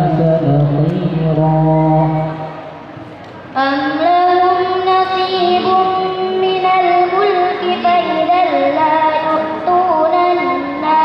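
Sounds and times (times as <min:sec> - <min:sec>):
girl chanting recitation: 0:03.5 - 0:11.0.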